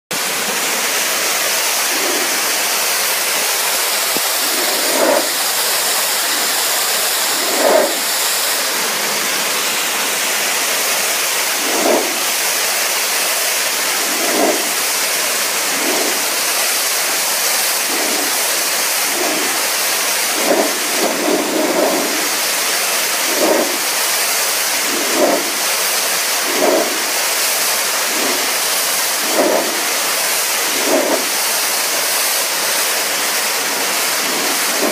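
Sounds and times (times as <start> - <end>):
pressure washer jet hissing: 0.1 - 34.9
water splashing on tiles: 9.2 - 34.9.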